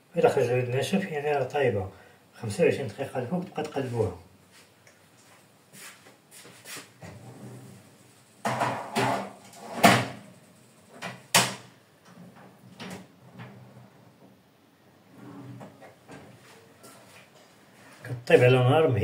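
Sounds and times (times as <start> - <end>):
oven door and rack clattering: 8.4 - 10.3.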